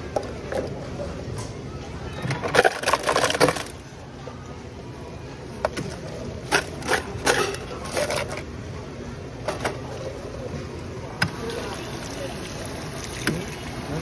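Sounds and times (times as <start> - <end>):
ice cubes clattering into cup: 2.4 - 3.8.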